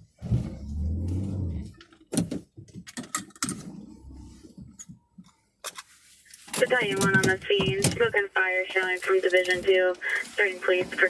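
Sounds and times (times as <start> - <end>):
vehicle low rumble: 0.2 - 2.0.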